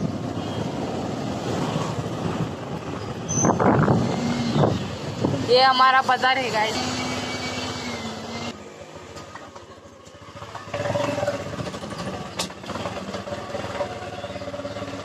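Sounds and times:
motorcycle engine running: 9.4 - 15.0.

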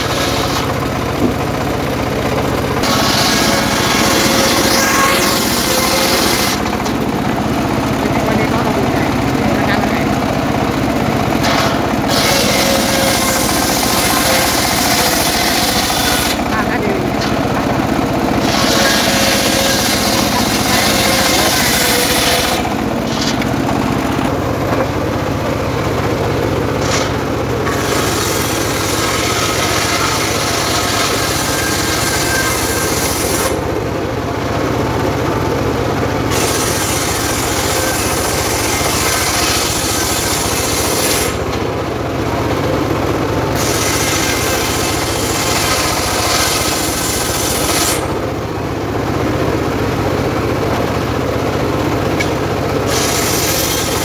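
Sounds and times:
saw blade cutting hiss: 0.0 - 0.7, 2.8 - 6.7, 11.4 - 16.4, 18.4 - 23.4, 36.3 - 41.4, 43.6 - 48.1, 52.9 - 54.0
circular saw drone: 0.0 - 54.0.

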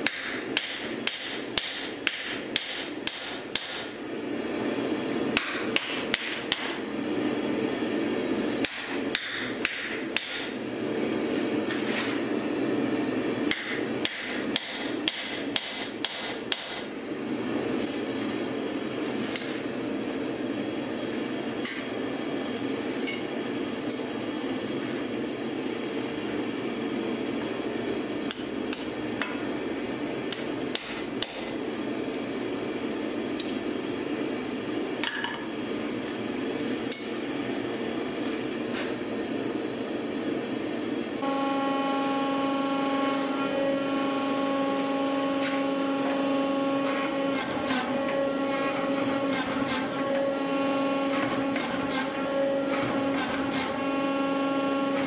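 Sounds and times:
hammer striking chisel on metal: 0.0 - 3.9, 8.6 - 10.6, 13.5 - 16.9, 36.9 - 37.2.

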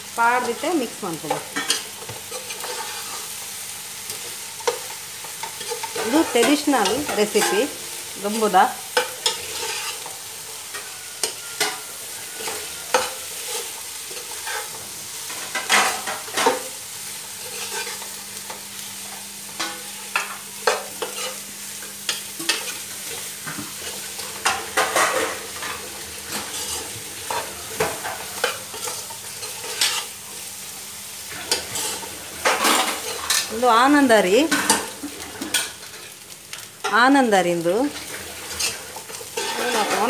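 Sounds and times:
frying sizzle: 0.0 - 40.0
spoon scraping pot: 9.0 - 14.8, 38.5 - 40.0.

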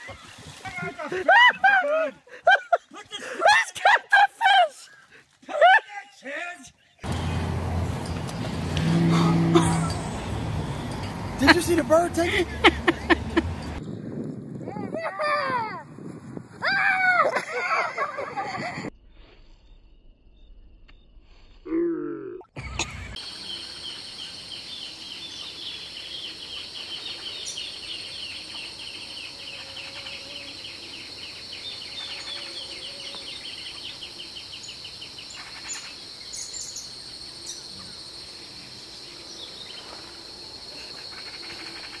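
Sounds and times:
pulsing insect trill: 23.2 - 42.0.

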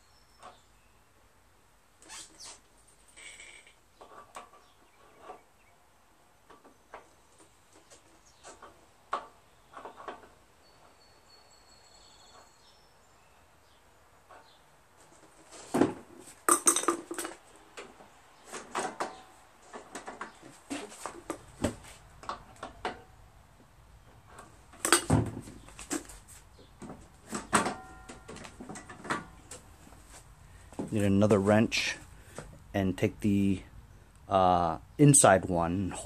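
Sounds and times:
wrench and nuts clinking: 16.5 - 17.4.

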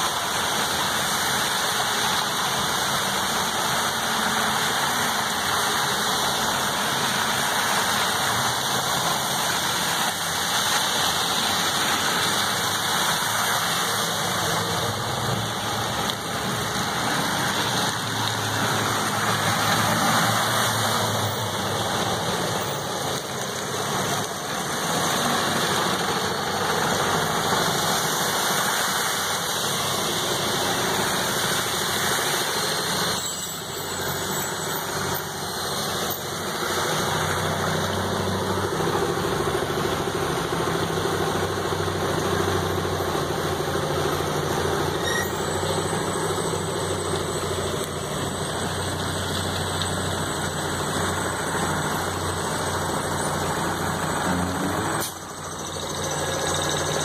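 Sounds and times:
rain hiss: 0.0 - 57.0
vehicle engines running: 0.0 - 57.0
wet tyres on road: 0.0 - 57.0
engine idling: 34.9 - 57.0.

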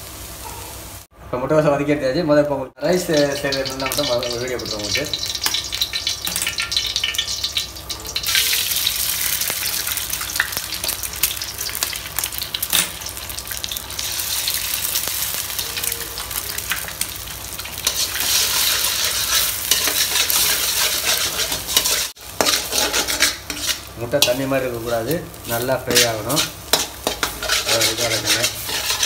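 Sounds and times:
eggs sizzling in a wok: 0.0 - 1.1, 2.8 - 29.0
metal spatula scraping pan: 17.8 - 24.5, 25.9 - 29.0.

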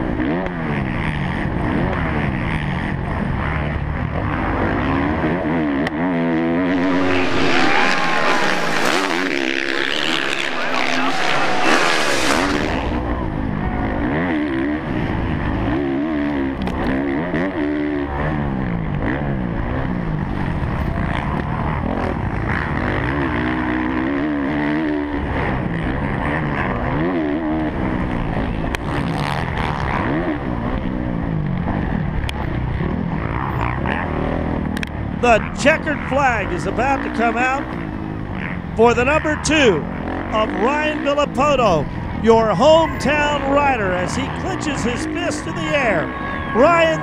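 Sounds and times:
motocross engine revving: 1.6 - 13.1.

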